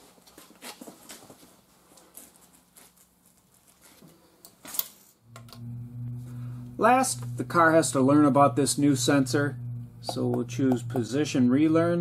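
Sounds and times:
steady low hum: 0:05.2 - 0:12.0.

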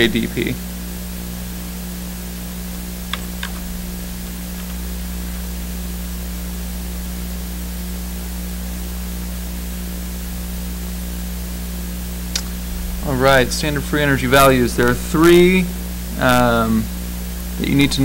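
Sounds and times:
electrical mains hum: 0:00.0 - 0:18.0
steady hiss: 0:00.0 - 0:18.0.

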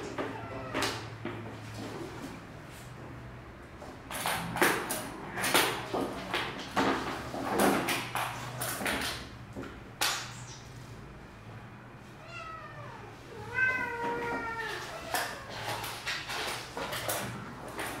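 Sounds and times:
cat meowing: 0:00.0 - 0:01.1, 0:12.2 - 0:15.8
knocks and rustling: 0:03.8 - 0:10.4.

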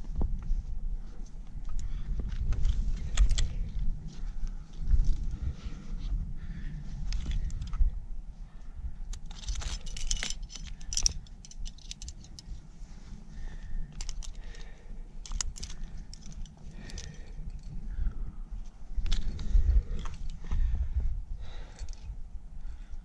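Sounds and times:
steady low rumble: 0:00.0 - 0:23.0
metal climbing gear clinking: 0:01.2 - 0:05.4, 0:07.0 - 0:07.9, 0:09.1 - 0:12.6, 0:13.5 - 0:18.2, 0:18.9 - 0:20.6, 0:21.4 - 0:22.2.

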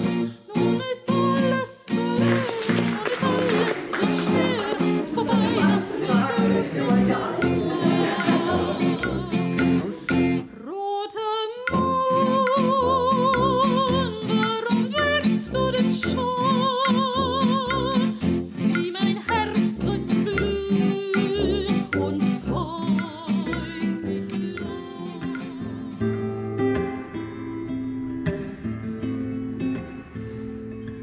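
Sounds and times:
acoustic guitar music: 0:00.0 - 0:10.8, 0:11.6 - 0:31.0.

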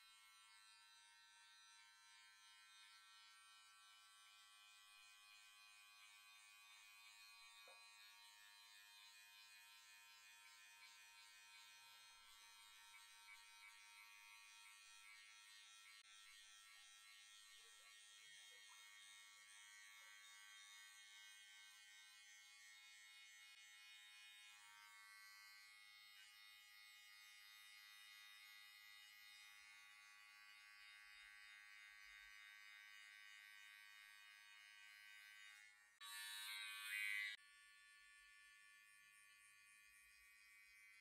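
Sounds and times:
electric hair clippers buzzing: 0:00.0 - 0:41.0.

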